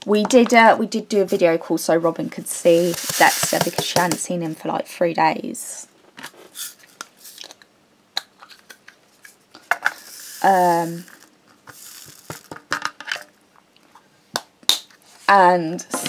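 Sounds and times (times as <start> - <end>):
beads rattling in tray: 2.7 - 4.3, 6.5 - 7.6, 9.8 - 13.0.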